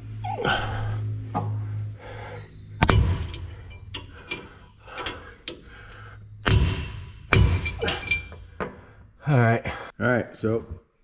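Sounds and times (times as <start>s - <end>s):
hammer striking metal: 2.8s - 4.4s, 6.4s - 8.8s
light metallic knocks and clinks: 2.8s - 8.9s.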